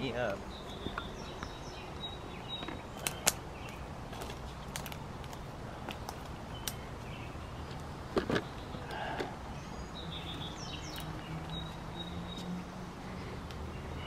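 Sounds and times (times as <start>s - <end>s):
low outdoor background noise: 0.0s - 14.0s.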